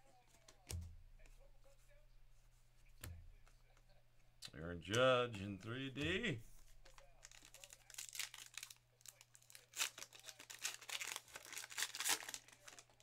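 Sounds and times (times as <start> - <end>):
wrapper crinkling and tearing: 6.8 - 13.0.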